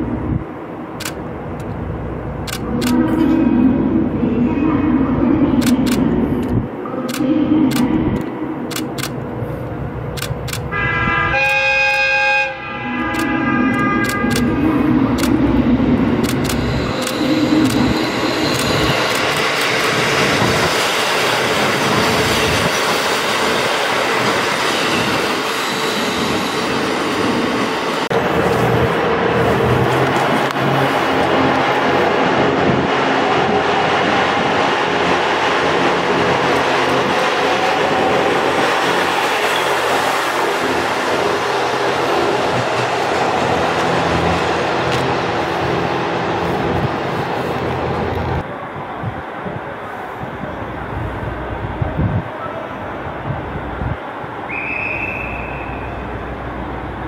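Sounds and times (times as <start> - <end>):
diesel railcar engine rumble: 0.0 - 57.0
train wheels rushing past: 7.7 - 48.5.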